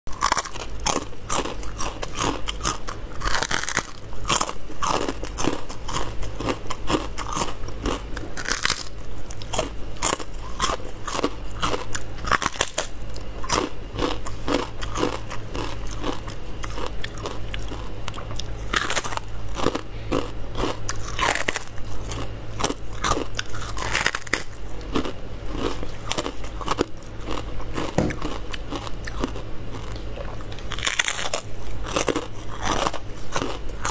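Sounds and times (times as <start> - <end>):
crunching crisp skin: 0.1 - 33.9
steady low hum: 0.1 - 33.9
wet chewing: 0.1 - 33.9.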